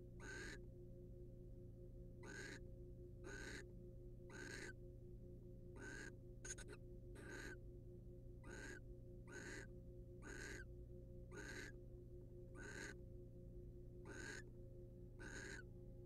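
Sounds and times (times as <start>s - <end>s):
low electrical hum: 0.0s - 16.0s
owl rasping hiss-like calls: 0.2s - 0.6s, 2.2s - 2.6s, 3.3s - 3.6s, 4.3s - 4.7s, 5.8s - 7.6s, 8.4s - 10.6s, 11.3s - 11.7s, 12.6s - 13.0s, 14.1s - 14.4s, 15.2s - 15.6s.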